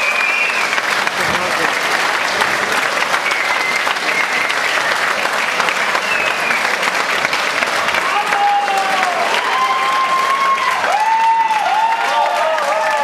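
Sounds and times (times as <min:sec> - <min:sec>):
high whistles: 0:00.0 - 0:00.8, 0:03.1 - 0:06.8
audience applauding: 0:00.0 - 0:13.0.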